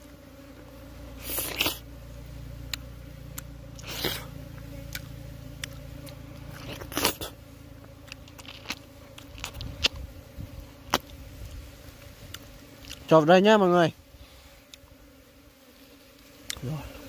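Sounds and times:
honeycomb crunches and clicks: 1.2s - 1.8s, 2.6s - 10.2s, 10.8s - 11.6s, 12.2s - 13.2s, 16.1s - 16.7s.

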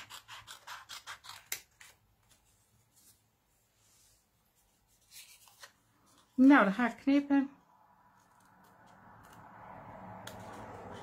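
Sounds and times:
paper card scratching: 0.0s - 2.0s, 4.9s - 6.2s.

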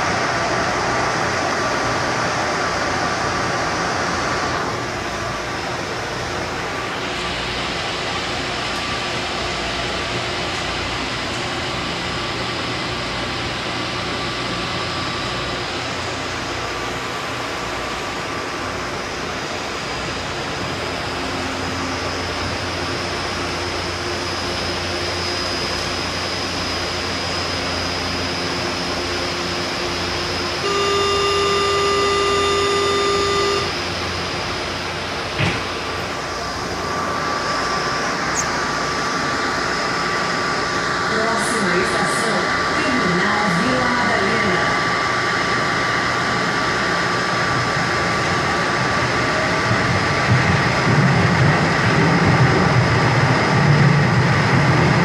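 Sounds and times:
train car running noise: 0.0s - 55.0s
door-closing warning tone: 30.4s - 34.1s
sliding doors shutting: 33.7s - 39.2s.

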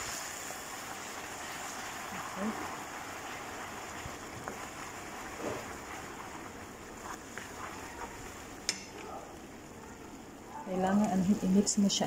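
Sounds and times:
caramel sizzling in a pan: 0.0s - 12.0s
spatula tapping pan: 7.0s - 9.0s.

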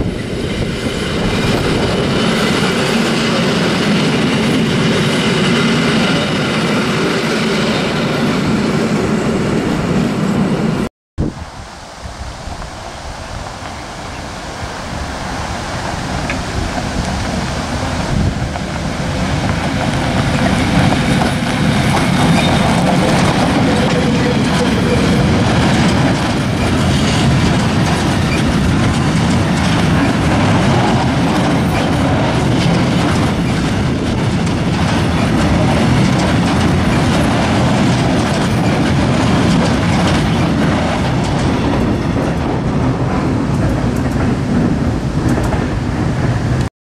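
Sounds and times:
freight train rumble: 0.0s - 46.7s
wheels clacking over rail joints: 12.0s - 46.7s.

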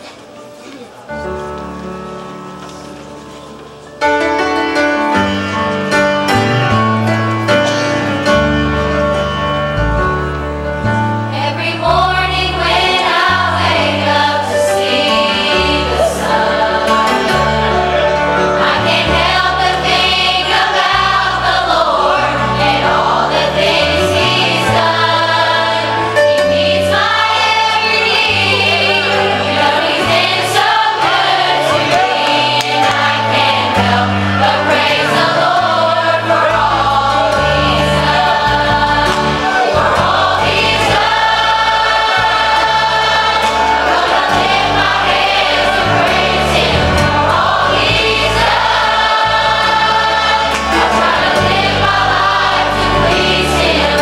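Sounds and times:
piano: 0.0s - 54.0s
bass: 5.1s - 54.0s
choir singing gospel song: 10.8s - 54.0s.

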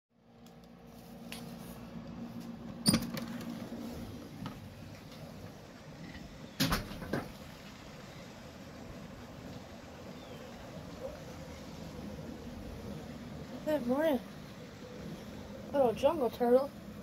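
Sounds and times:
sliding glass door opening: 2.7s - 13.6s.

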